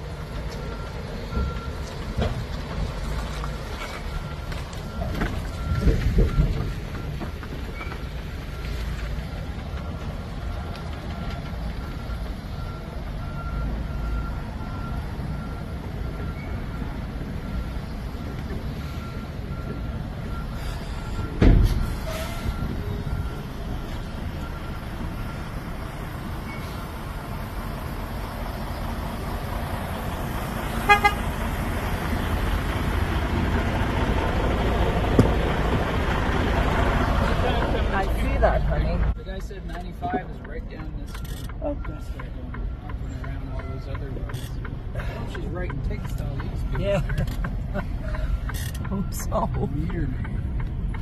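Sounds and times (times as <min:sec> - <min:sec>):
diesel truck engine rumbling: 0:00.0 - 0:51.0
reversing alarm beeping: 0:04.1 - 0:10.2, 0:11.2 - 0:25.8
truck horn toots: 0:30.8 - 0:31.4.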